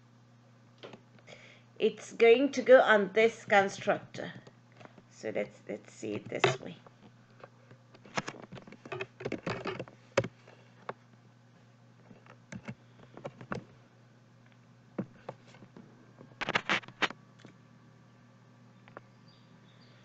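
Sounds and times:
faint low hum: 0.0 - 20.0
computer keyboard and mouse clicks: 8.0 - 10.3, 12.2 - 13.6.

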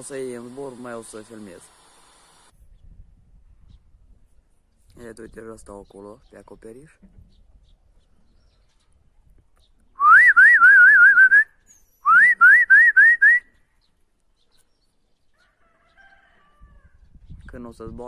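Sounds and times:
person whistling: 10.0 - 13.5.

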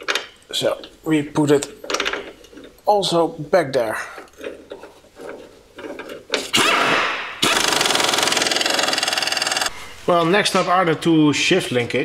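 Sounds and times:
power ratchet rattling: 5.8 - 9.7.

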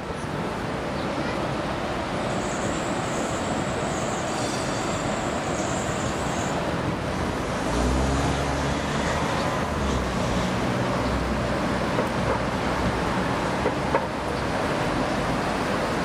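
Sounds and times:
city street traffic: 0.0 - 16.0
faint high-pitched squeal: 2.2 - 6.7.

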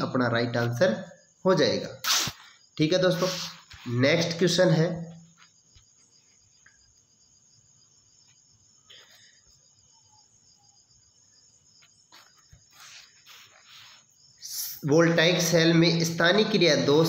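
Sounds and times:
faint high-pitched chirring: 0.0 - 17.0
soft rustle: 11.8 - 14.3.

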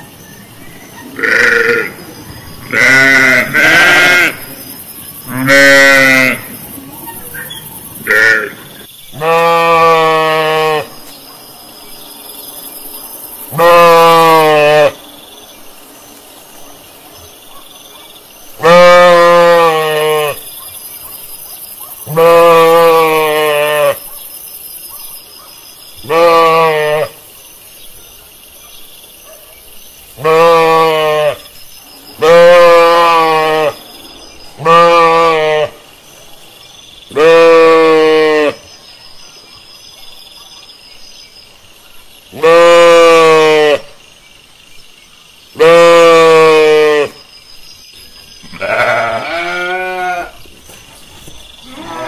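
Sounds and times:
sheep bleating: 1.2 - 2.0, 2.7 - 4.5, 5.3 - 6.5, 9.2 - 10.9, 18.6 - 20.4, 22.1 - 24.0, 26.1 - 27.2, 30.2 - 31.4, 34.6 - 35.8, 37.1 - 38.6, 42.4 - 43.8, 45.6 - 47.1, 48.5 - 50.4.

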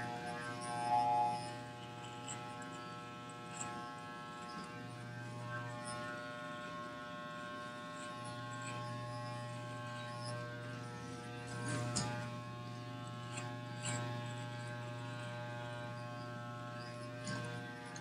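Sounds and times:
electric hair clippers buzzing: 0.0 - 18.0.

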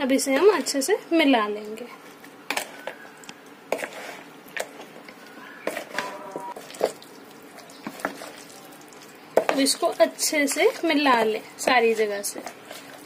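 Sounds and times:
wet squelching: 2.5 - 11.0.

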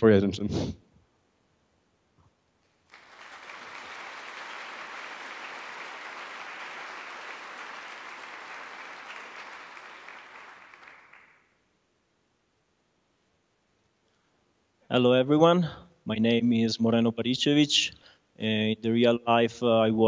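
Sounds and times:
audience applauding: 2.8 - 11.6.

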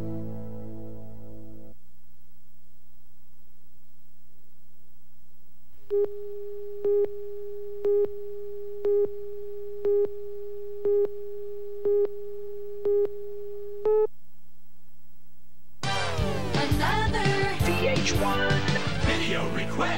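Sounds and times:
steady mid-pitched tone: 5.9 - 14.2.

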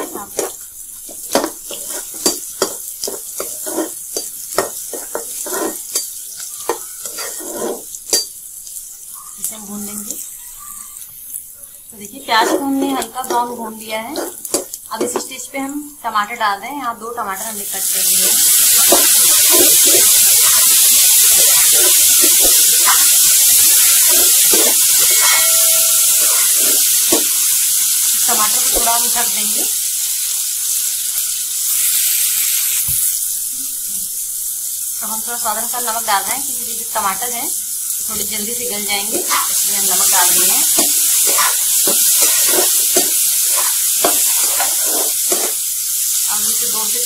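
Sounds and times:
spatula scraping and stirring: 0.0 - 11.1, 12.2 - 15.4, 18.1 - 29.8, 39.1 - 45.7
onions sizzling in hot oil: 0.0 - 47.0.

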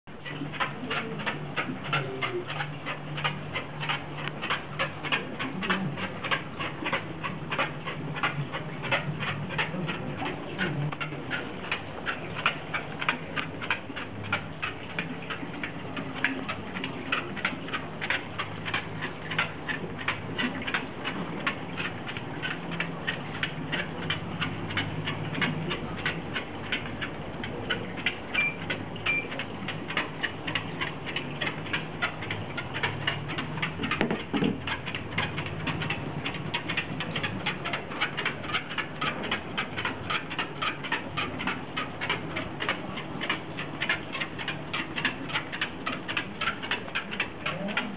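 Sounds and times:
dog paws clicking on treadmill: 0.1 - 47.9
treadmill humming: 0.1 - 47.9.

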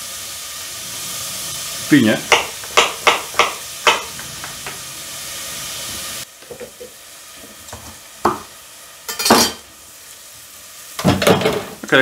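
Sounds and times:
onion sizzling in oil: 0.0 - 12.0
knocks on wooden cutting board: 8.2 - 8.5.

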